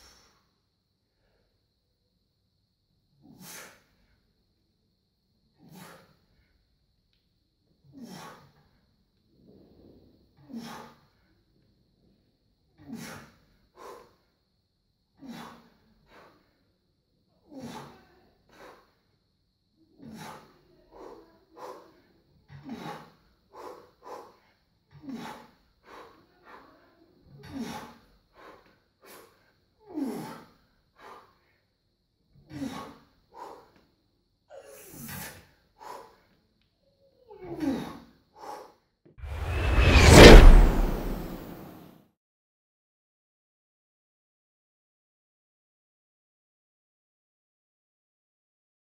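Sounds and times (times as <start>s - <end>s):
forceful breaths and snorts: 20.0s - 26.2s
faint high whine: 39.3s - 41.9s.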